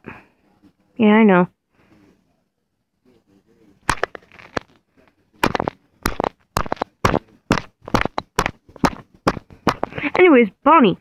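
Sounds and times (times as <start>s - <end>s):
sharp knocks: 3.9s - 4.7s, 5.4s - 10.2s.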